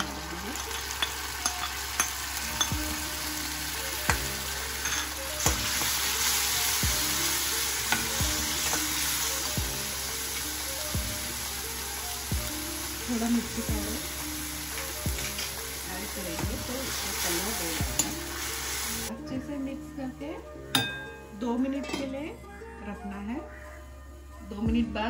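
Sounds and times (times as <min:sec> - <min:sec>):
metal spoon clinking against pan: 0:00.0 - 0:02.8, 0:04.1 - 0:06.0, 0:07.8 - 0:09.0, 0:17.8 - 0:18.3, 0:20.7 - 0:21.2
tomato puree sizzling in hot oil: 0:00.0 - 0:19.1.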